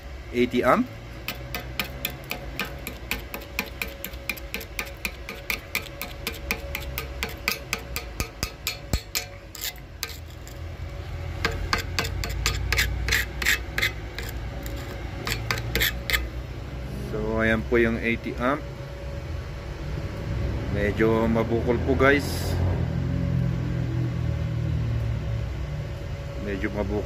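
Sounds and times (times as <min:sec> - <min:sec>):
screwdriver chipping slag off metal: 0:01.3 - 0:10.6, 0:11.4 - 0:16.3.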